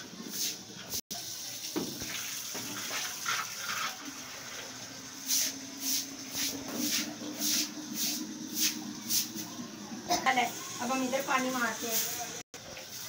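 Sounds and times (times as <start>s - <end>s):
water running from tap pipe: 0.0s - 13.0s
broom swishing water on concrete: 5.2s - 9.6s.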